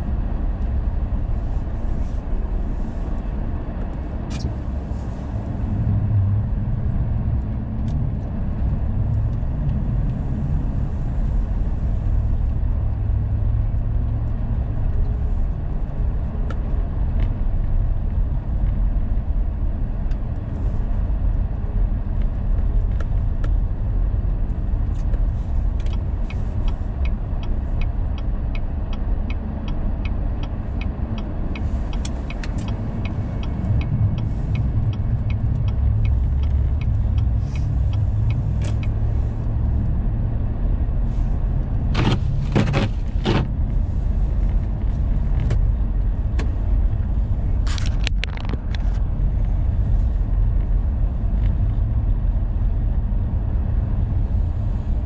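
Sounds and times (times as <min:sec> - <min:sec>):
car engine and tyre rumble: 0:00.0 - 0:55.0
turn signal ticking: 0:24.6 - 0:40.9.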